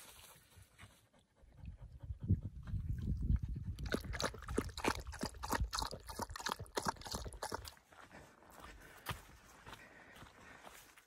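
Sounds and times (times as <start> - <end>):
water splashing: 3.8 - 7.8.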